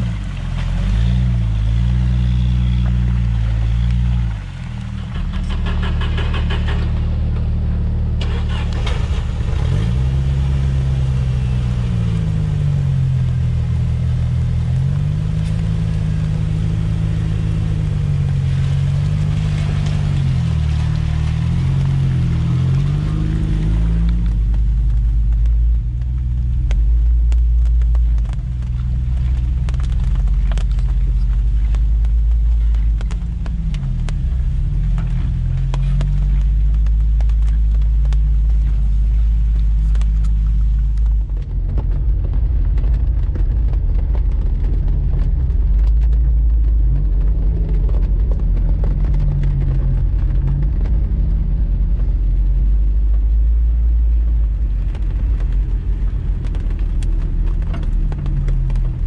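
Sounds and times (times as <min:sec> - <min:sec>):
car engine rumbling: 0:00.0 - 0:59.0
sharp clicks and knocks: 0:03.7 - 0:07.6.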